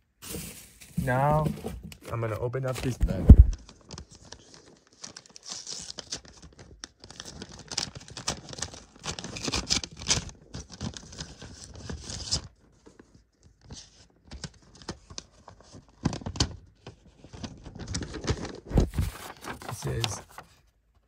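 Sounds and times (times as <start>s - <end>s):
bag rustling and crackling: 18.6s - 20.4s.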